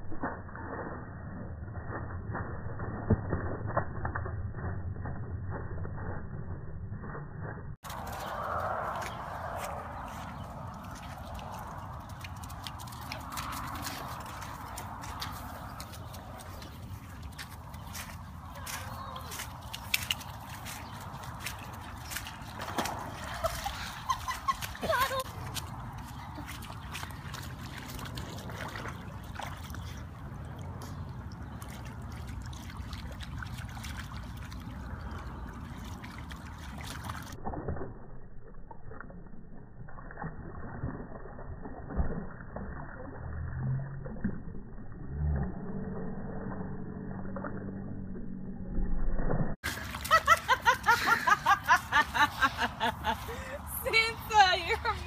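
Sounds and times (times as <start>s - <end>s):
dogs splashing in water: 7.8s - 37.9s, 49.6s - 55.0s.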